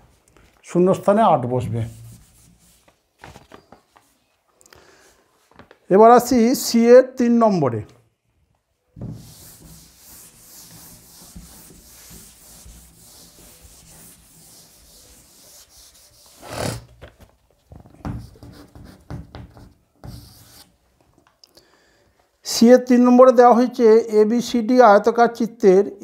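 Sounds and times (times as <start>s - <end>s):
scratching on a writing surface: 9.1s - 16.9s, 18.2s - 20.7s.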